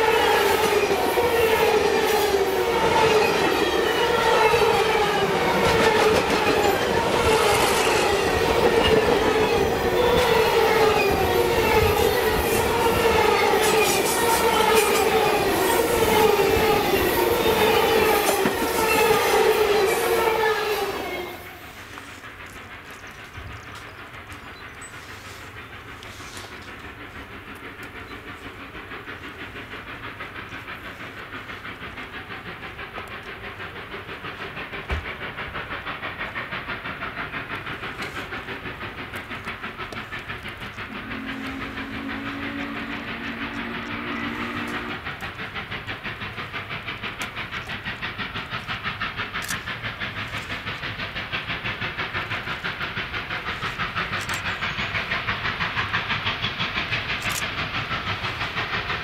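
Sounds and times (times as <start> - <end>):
steam locomotive exhaust chuffing: 0.0 - 59.0
steam whistle long blast: 40.9 - 45.0.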